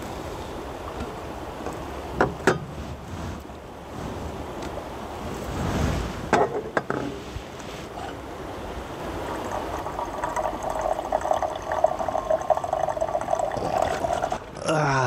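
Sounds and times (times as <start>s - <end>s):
liquid sound with fine crackle: 9.0s - 14.5s.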